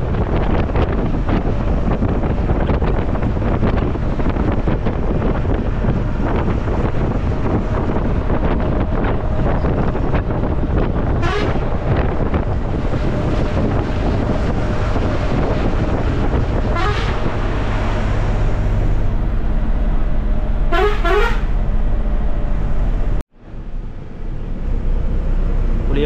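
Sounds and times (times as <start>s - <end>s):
bus engine drone: 0.0s - 26.0s
vehicle horn honks: 11.2s - 11.7s, 16.7s - 17.3s, 20.7s - 21.6s.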